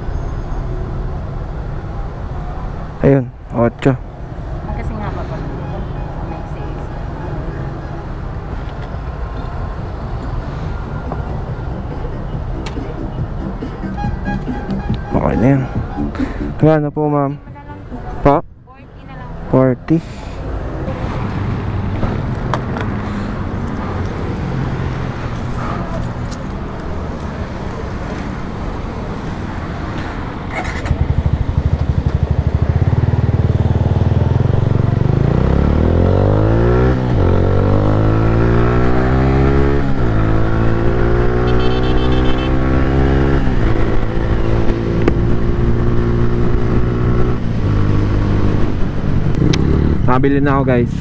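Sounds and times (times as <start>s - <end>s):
street traffic hum: 0.0s - 51.0s
motorcycle engine accelerating: 30.5s - 50.2s.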